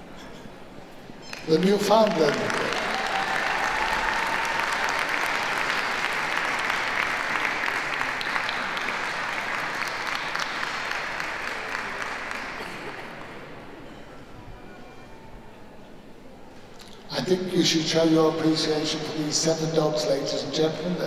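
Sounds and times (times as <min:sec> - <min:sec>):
audience applauding: 0:01.2 - 0:13.6.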